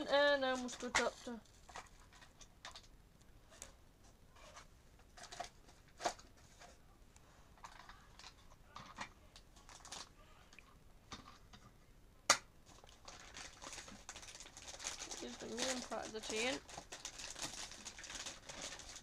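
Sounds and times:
plastic pieces clicking and rustling: 0.4s - 2.9s, 5.0s - 6.7s, 12.7s - 19.0s.

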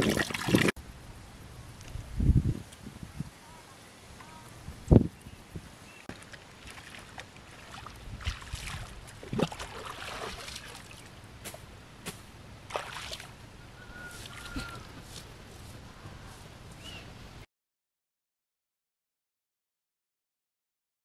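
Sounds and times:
water sloshing and splashing: 0.0s - 0.8s, 6.1s - 11.7s, 12.6s - 13.4s, 14.1s - 15.2s.

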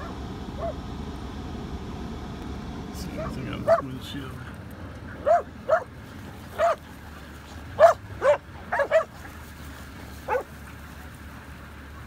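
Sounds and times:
dogs barking: 0.0s - 0.8s, 3.0s - 4.1s, 5.1s - 6.9s, 7.7s - 9.3s, 10.2s - 10.6s.

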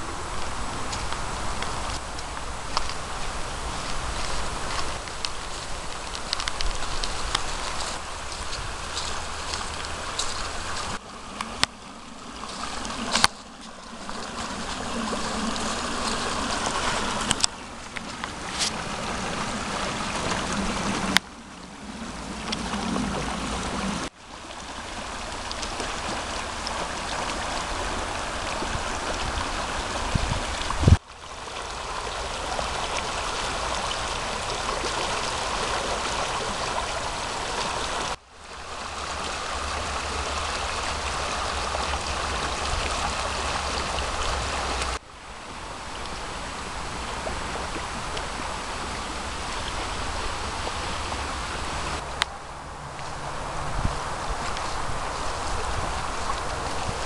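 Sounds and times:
river rushing over stones: 0.0s - 57.0s.

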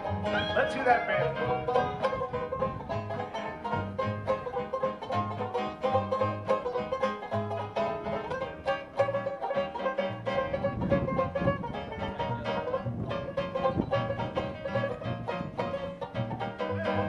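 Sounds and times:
repeating bass line: 0.0s - 4.6s, 10.1s - 17.0s
plucked banjo notes: 0.0s - 17.0s.

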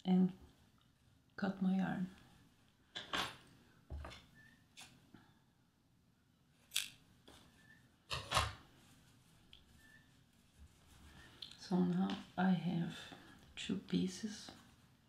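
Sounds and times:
soft handling sounds: 6.5s - 7.9s, 8.6s - 15.0s.

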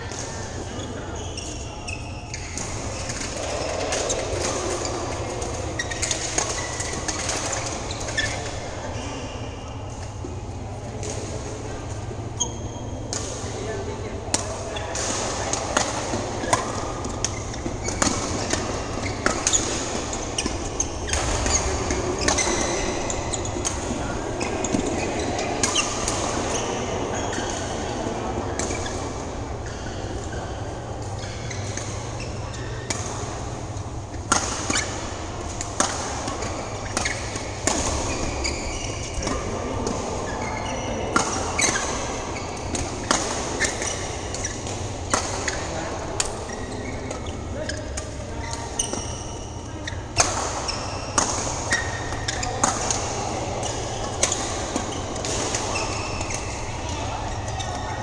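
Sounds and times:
rackets striking shuttlecock: 14.3s - 27.8s, 31.0s - 57.8s.

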